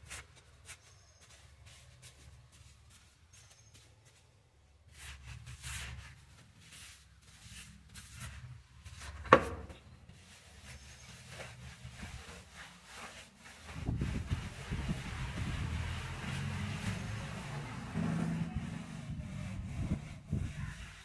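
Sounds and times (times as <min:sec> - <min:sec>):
trowel scraping wet plaster: 0:04.9 - 0:21.0.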